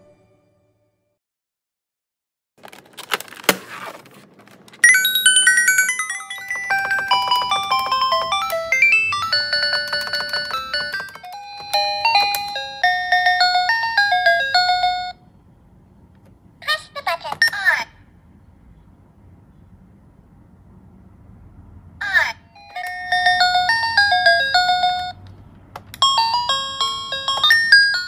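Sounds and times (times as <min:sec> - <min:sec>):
handling noise: 0:02.6 - 0:05.1, 0:06.3 - 0:12.6
toy laptop beeping melody: 0:04.8 - 0:15.2, 0:22.5 - 0:25.2, 0:26.0 - 0:28.0.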